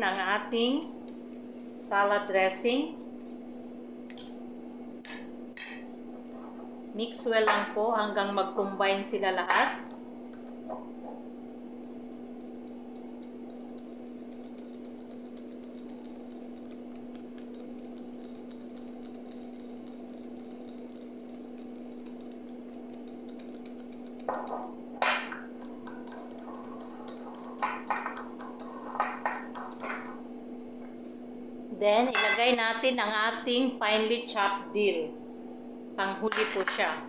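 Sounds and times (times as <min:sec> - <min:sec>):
steady hum: 0:00.0 - 0:37.0
whisk clicking and scraping bowl: 0:00.1 - 0:01.8, 0:11.8 - 0:30.3.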